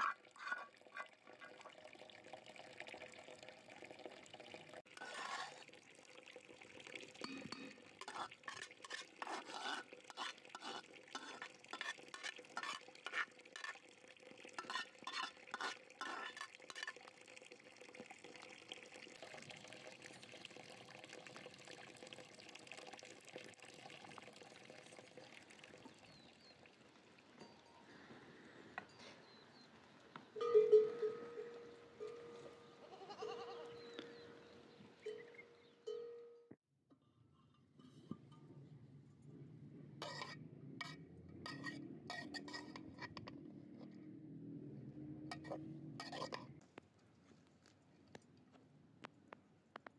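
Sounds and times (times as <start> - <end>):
goat bleating: 32.8 - 34.0.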